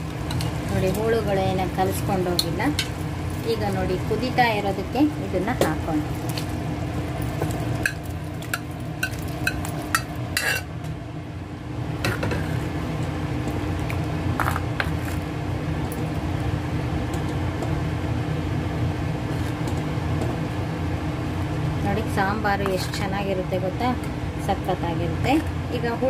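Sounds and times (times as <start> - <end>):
steady low hum: 0.0 - 26.0
metal utensils clinking on clay pot: 7.8 - 10.7.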